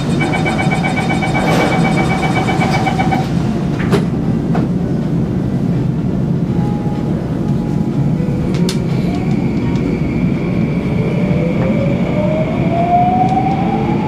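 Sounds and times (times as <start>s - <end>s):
rapid warning beeps: 0.0s - 3.3s
train low hum: 0.0s - 14.0s.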